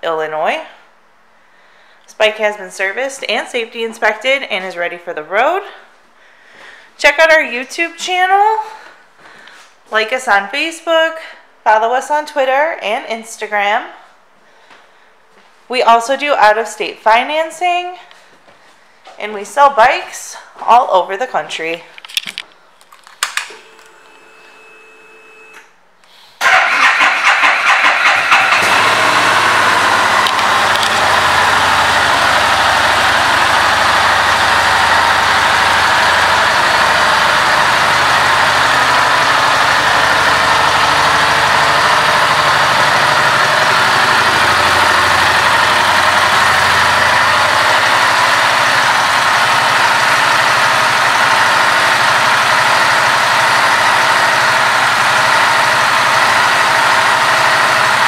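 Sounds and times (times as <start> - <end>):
motorcycle engine starting and idling: 26.4 - 58.0.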